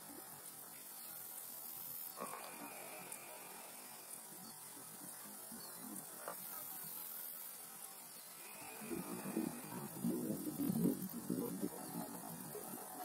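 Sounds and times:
low hum and hiss: 0:00.0 - 0:13.0.

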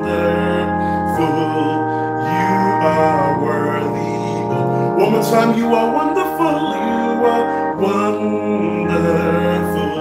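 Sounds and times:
electronic keyboard chords: 0:00.0 - 0:10.0
man singing: 0:00.0 - 0:10.0.

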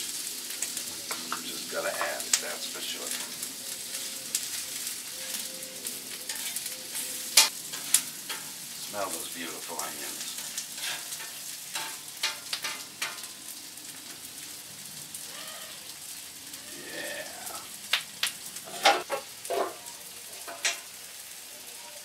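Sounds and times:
onions sizzling on griddle: 0:00.0 - 0:22.0
metal cover clanking on griddle: 0:06.3 - 0:08.6, 0:10.4 - 0:13.3, 0:18.7 - 0:20.9.

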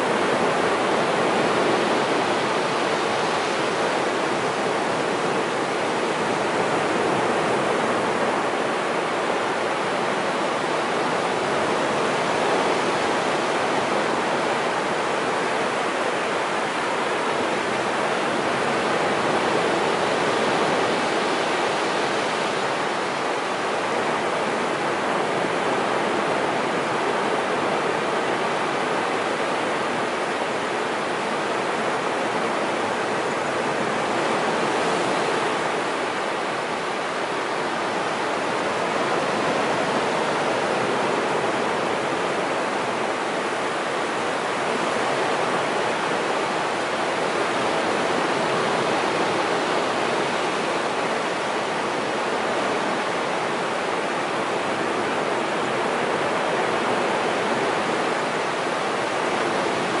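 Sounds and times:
ocean surf breaking on beach: 0:00.0 - 1:00.0.

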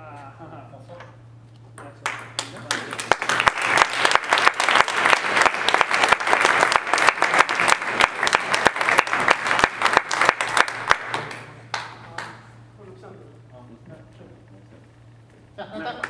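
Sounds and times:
spectators applauding: 0:02.0 - 0:12.4.

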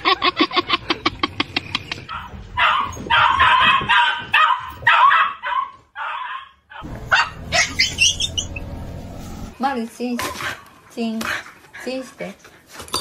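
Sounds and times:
dog barking roughly: 0:02.1 - 0:08.4
dog yelping rapidly: 0:02.1 - 0:08.7.

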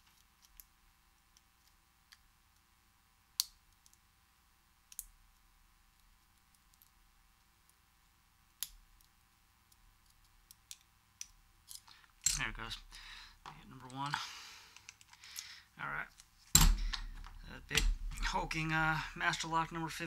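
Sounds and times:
lock pick clicking on pins: 0:04.9 - 0:05.1.

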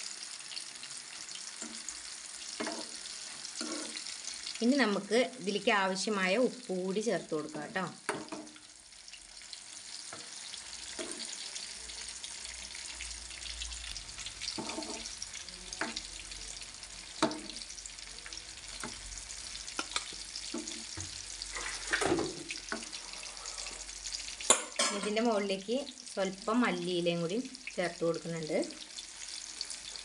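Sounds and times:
food sizzling in a frying pan: 0:00.0 - 0:30.0.

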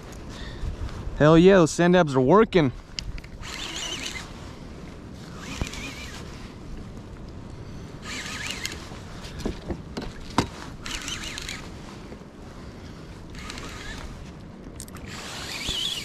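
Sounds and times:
wind and water hiss: 0:00.0 - 0:16.0
fishing reel whirring: 0:03.4 - 0:04.4, 0:05.3 - 0:06.3, 0:08.0 - 0:08.9, 0:10.8 - 0:11.7, 0:13.3 - 0:14.1, 0:14.8 - 0:16.0.

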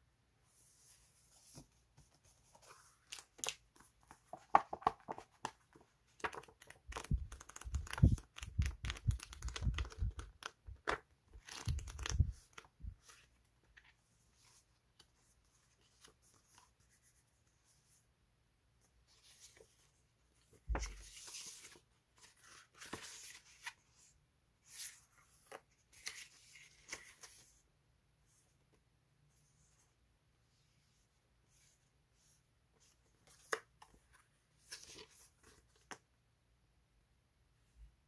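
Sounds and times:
paper rustling and clicking: 0:04.3 - 0:12.7
soft paper thumps: 0:20.5 - 0:21.2.

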